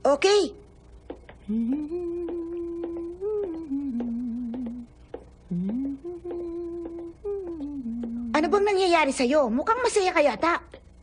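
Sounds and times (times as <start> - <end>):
light footsteps: 1.0 - 8.5
woman humming: 1.3 - 8.6.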